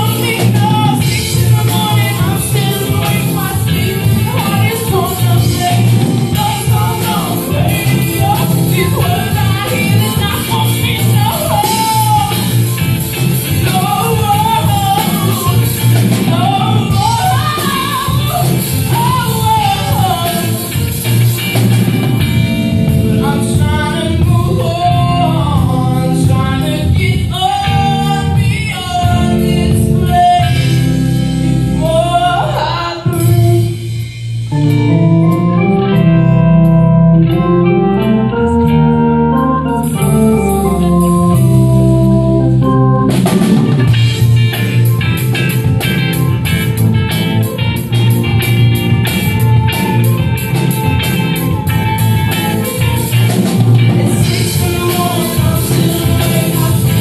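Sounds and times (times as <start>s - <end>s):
male lead vocal: 0.0s - 21.9s, 22.8s - 34.1s, 51.6s - 57.0s
live rock band playing: 0.0s - 57.0s.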